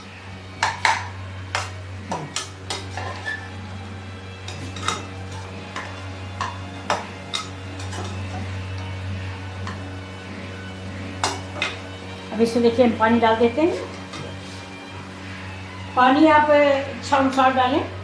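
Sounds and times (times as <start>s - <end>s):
low steady hum: 0.0s - 18.0s
metal spatula scraping a pan: 0.6s - 3.6s, 4.4s - 6.6s.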